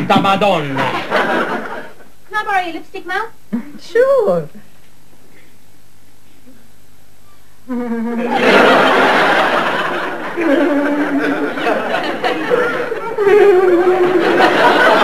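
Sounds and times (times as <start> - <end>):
studio audience laughing: 0.8 - 2.0, 8.2 - 15.0.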